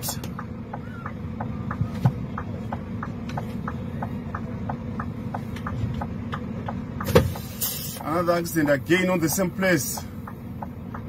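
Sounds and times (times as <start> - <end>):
vehicle engine idling: 0.0 - 11.0
light ticking: 8.0 - 11.0.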